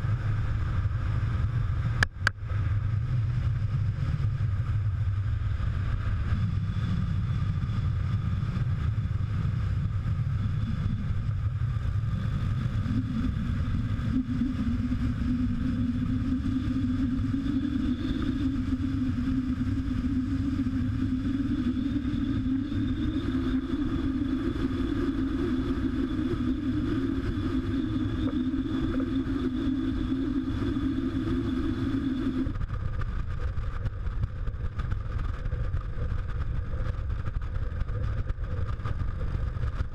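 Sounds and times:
motorcycle engine drone: 0.0s - 39.9s
wind noise: 0.0s - 39.9s.

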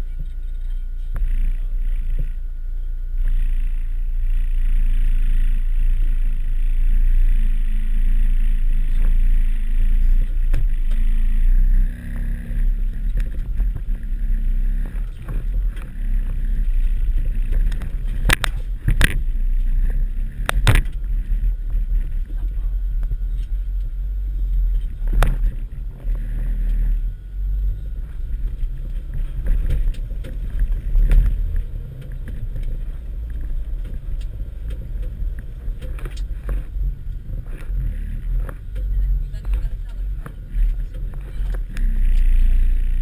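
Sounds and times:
van engine drone: 0.0s - 43.0s
vehicle body rattles: 24.6s - 43.0s.

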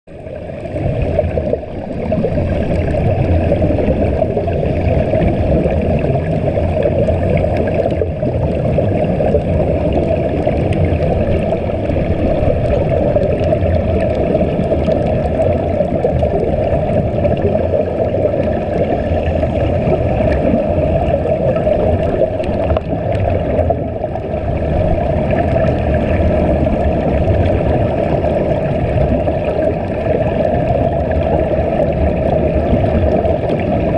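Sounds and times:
underwater bubbling rumble: 0.1s - 33.9s.

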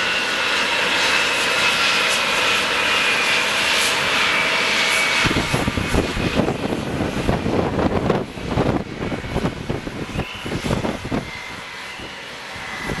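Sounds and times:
jet engine rush and whine: 0.0s - 13.0s
gusty low rumble: 4.9s - 13.0s.

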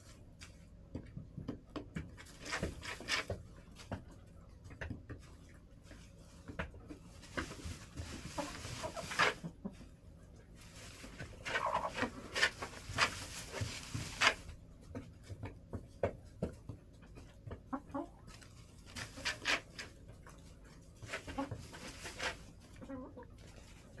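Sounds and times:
hens clucking: 6.6s - 14.4s, 16.9s - 24.0s.

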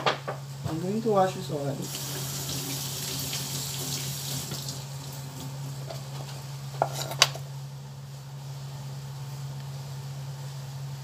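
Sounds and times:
kitchen tap running into sink: 1.8s - 5.5s.

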